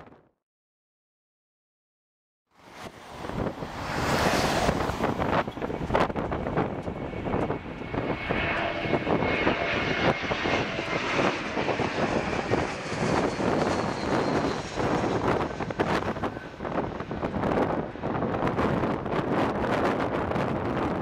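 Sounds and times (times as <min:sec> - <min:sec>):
jet engines passing overhead: 0:02.5 - 0:21.0
wind buffeting microphone: 0:02.6 - 0:21.0.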